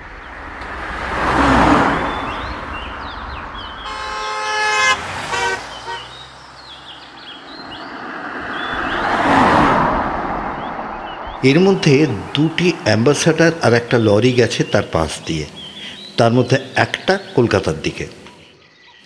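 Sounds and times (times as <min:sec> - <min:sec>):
vehicles passing by: 0:00.0 - 0:18.8
vehicle horn: 0:03.6 - 0:06.3.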